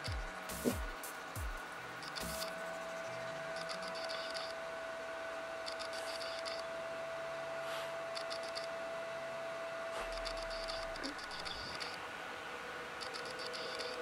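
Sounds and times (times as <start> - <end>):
soft background music: 0.0 - 5.0.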